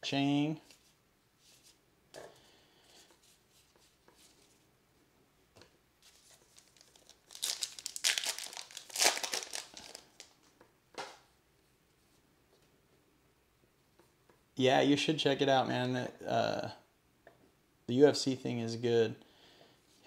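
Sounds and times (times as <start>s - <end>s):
handling trading cards: 6.0s - 11.2s
card wrapper crinkling and tearing: 6.1s - 10.4s.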